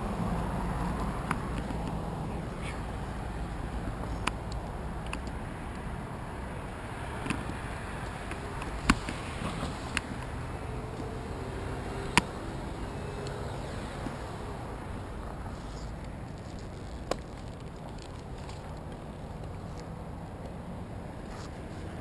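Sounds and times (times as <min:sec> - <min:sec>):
gear clicks and knocks: 0:15.4 - 0:20.6.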